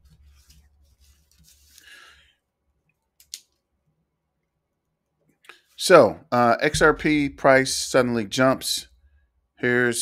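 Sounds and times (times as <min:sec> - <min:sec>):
faint soft rustle: 0:00.0 - 0:02.3.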